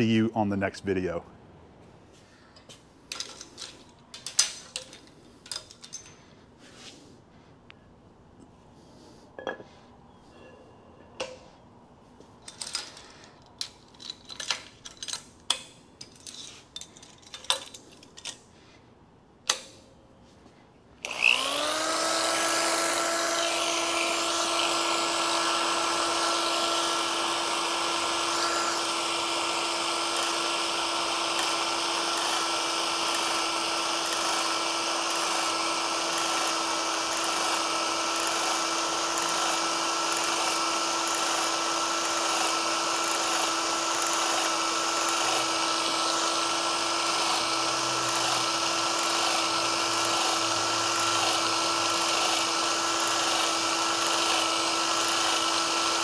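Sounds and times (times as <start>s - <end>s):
metal parts clinking on steel table: 3.1s - 6.2s, 12.4s - 18.4s
power scraper motor running: 21.0s - 56.0s.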